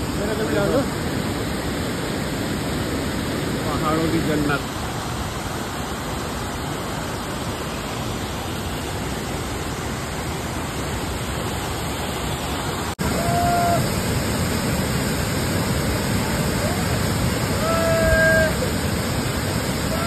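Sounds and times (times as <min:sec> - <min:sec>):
waterfall rushing: 0:00.0 - 0:20.0.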